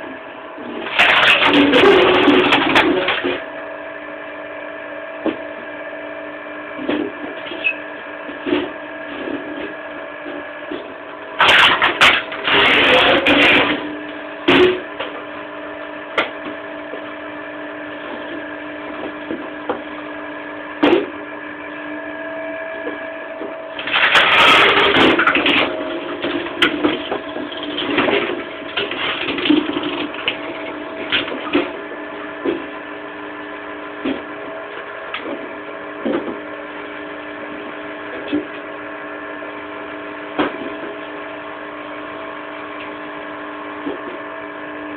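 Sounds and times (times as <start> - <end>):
wood grinding and cracking: 0.8 - 3.5, 10.7 - 15.3, 23.8 - 32.8.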